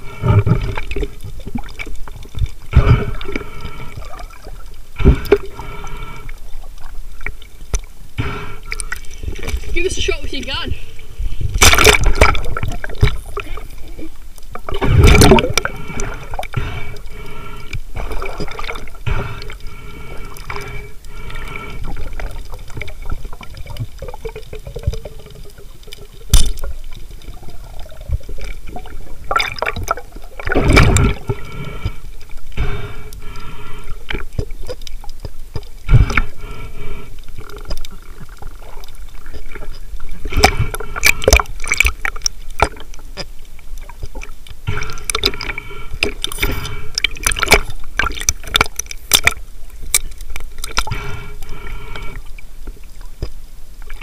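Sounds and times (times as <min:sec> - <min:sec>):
muffled underwater rushing water: 0:00.0 - 0:54.0
sharp crack: 0:11.6 - 0:12.5.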